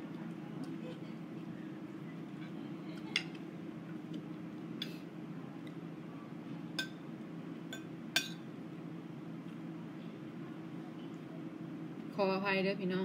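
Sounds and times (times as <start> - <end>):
cutlery clinking on a plate: 6.8 - 7.0, 7.7 - 8.4.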